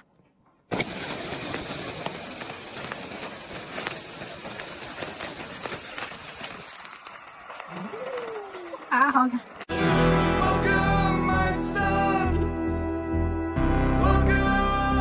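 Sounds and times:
sparkler fizzing and crackling: 0.7 - 12.1.

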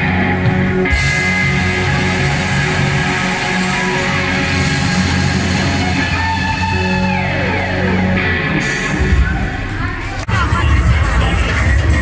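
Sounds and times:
bass guitar: 0.0 - 12.0
distorted electric guitar: 0.0 - 12.0
drums: 0.0 - 12.0.

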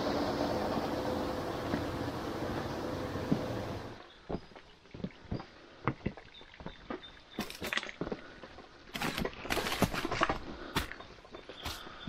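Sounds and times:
footsteps on stones and leaves: 4.2 - 12.0
crunching of leaves and twigs: 6.5 - 12.0.

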